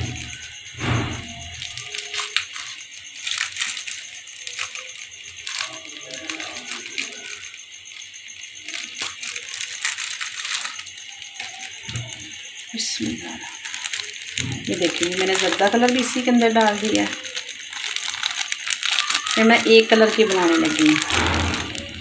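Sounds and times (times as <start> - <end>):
gas stove hiss: 0.0 - 3.0
pot ticking and crackling: 0.0 - 22.0.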